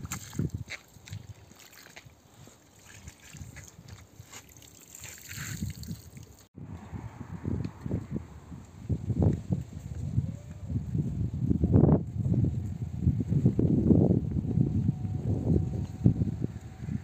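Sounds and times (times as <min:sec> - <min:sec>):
water splashing over carpet: 0:00.0 - 0:06.5
low rumbles: 0:06.5 - 0:12.1.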